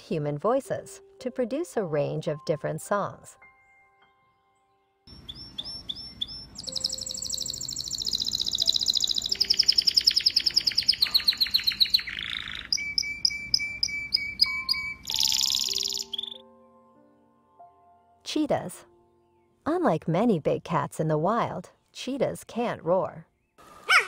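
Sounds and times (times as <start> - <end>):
canary singing trills: 5.1 - 16.4.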